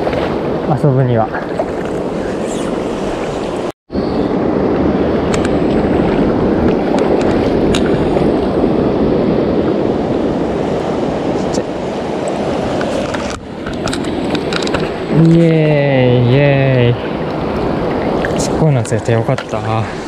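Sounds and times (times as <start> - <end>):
fast river current rushing: 5.3 - 20.0.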